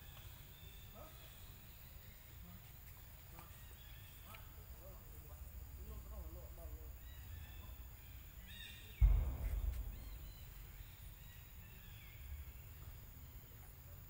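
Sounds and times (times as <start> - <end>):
birds chirping: 6.2 - 13.7
sudden low thump: 9.0 - 11.4
steady low rumble: 9.0 - 11.8.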